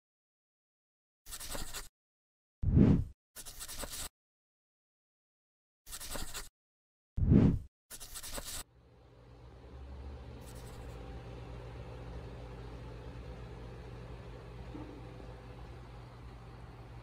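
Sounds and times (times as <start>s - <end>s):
steady low hum: 8.7s - 17.0s.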